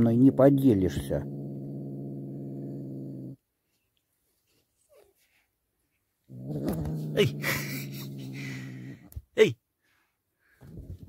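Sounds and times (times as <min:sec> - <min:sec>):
kitten growling: 0:00.0 - 0:03.4, 0:06.3 - 0:09.2.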